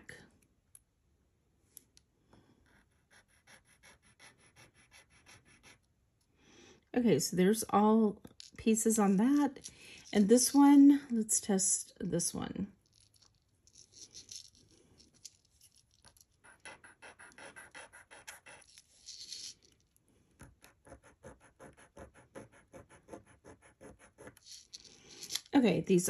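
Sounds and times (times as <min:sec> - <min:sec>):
metal jewelry clicking on tabletop: 0:24.4 - 0:25.5.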